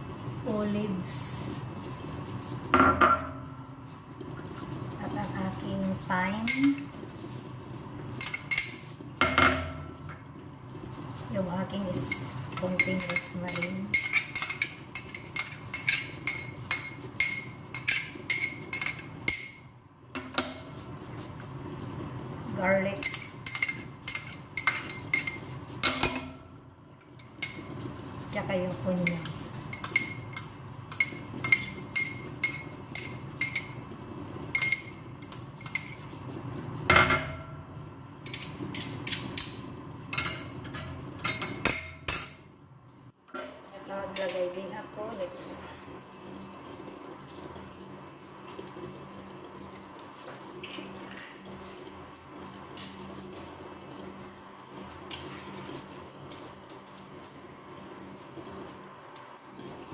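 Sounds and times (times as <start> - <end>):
metal spoon tapping bowl: 12.1 - 20.6, 23.0 - 26.4, 29.0 - 33.8, 34.6 - 36.0.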